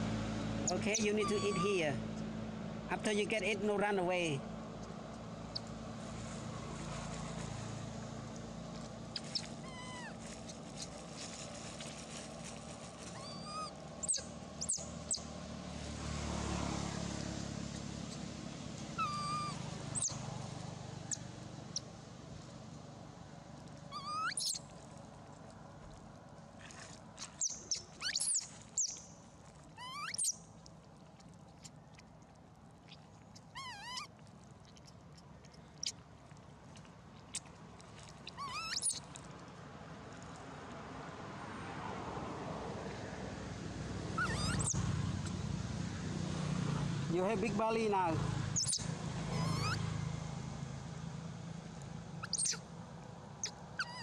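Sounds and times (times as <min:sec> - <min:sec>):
macaques squeaking: 0:00.6 - 0:02.0, 0:09.1 - 0:12.0, 0:13.0 - 0:15.3, 0:19.0 - 0:20.3, 0:23.9 - 0:24.7, 0:27.2 - 0:29.1, 0:29.7 - 0:30.4, 0:32.9 - 0:34.2, 0:38.1 - 0:39.2, 0:44.2 - 0:45.4, 0:48.6 - 0:49.8, 0:52.2 - 0:52.7, 0:53.4 - 0:54.0.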